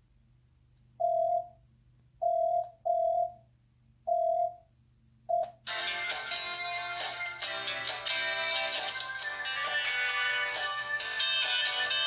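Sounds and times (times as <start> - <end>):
musical ringtone: 5.7 - 12.0.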